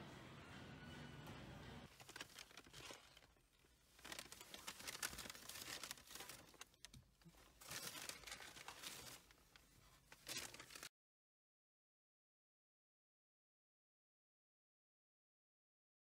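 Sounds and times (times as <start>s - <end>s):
packaging crinkling: 1.9s - 10.9s.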